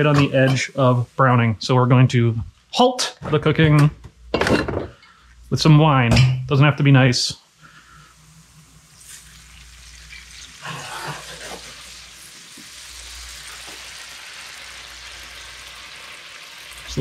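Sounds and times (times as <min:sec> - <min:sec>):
wine sizzling in hot pan: 0:00.0 - 0:02.8, 0:06.8 - 0:17.0.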